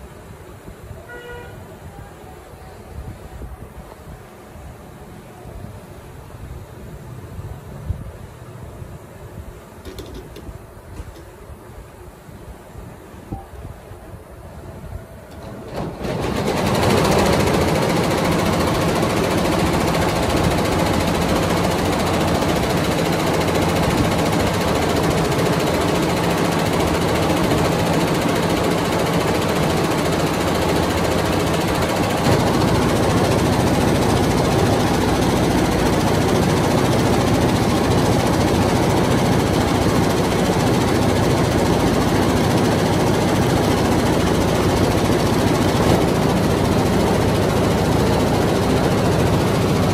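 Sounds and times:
embroidery machine clatter: 0:15.3 - 0:49.9.

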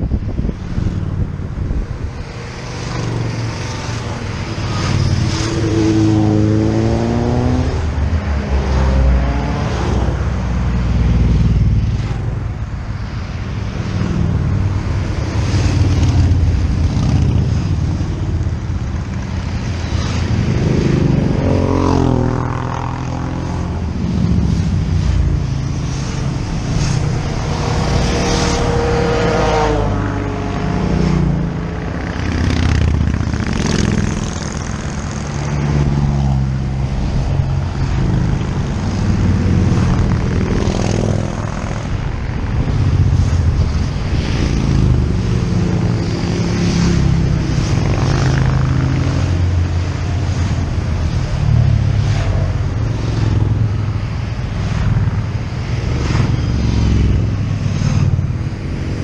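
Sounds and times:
motorcycle engine revving: 0:13.8 - 0:59.0.

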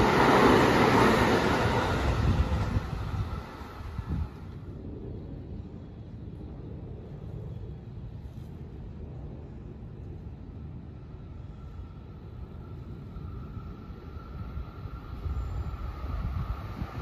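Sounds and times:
train rumble: 0:00.0 - 0:17.0
faint thin whine: 0:11.1 - 0:17.0.

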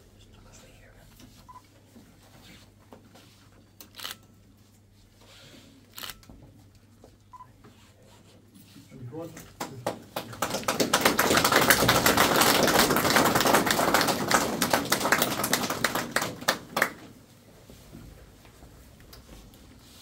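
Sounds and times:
small group applauding: 0:09.4 - 0:17.2.

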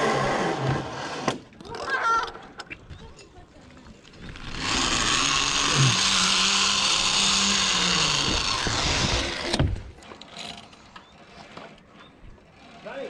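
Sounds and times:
zip-line pulley whirring on cable: 0:00.0 - 0:02.0, 0:04.2 - 0:11.8, 0:12.4 - 0:13.0.

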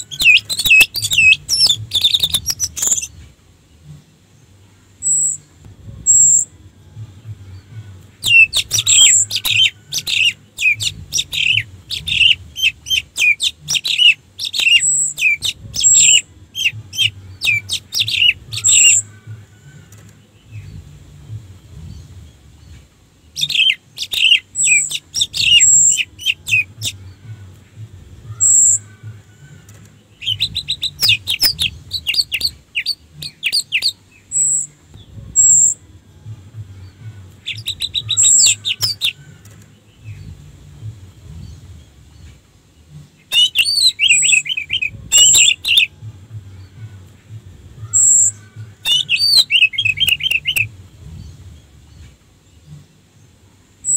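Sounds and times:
thrush singing whistled phrases: 0:00.0 - 0:03.1, 0:08.2 - 0:20.0, 0:23.4 - 0:27.0, 0:28.3 - 0:34.7, 0:37.5 - 0:39.5, 0:43.3 - 0:45.9, 0:47.8 - 0:50.7.

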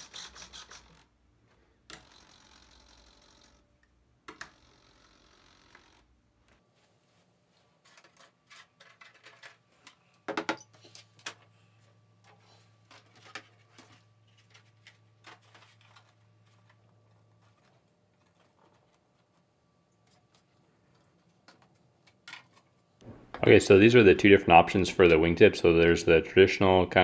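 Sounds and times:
plastic parts clicking: 0:07.9 - 0:11.5.

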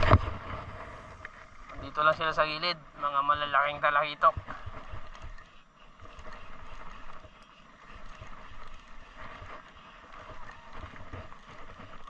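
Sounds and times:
wind buffeting microphone: 0:00.0 - 0:02.0
choppy water hissing: 0:00.0 - 0:12.0.

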